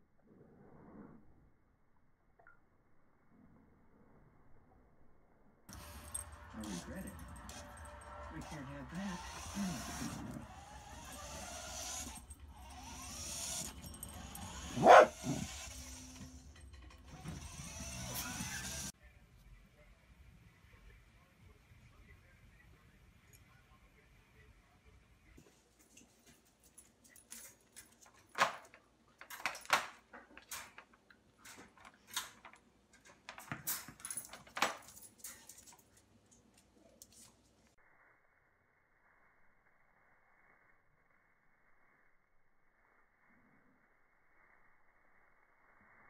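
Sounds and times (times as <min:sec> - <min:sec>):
dog barking: 0:14.7 - 0:15.5.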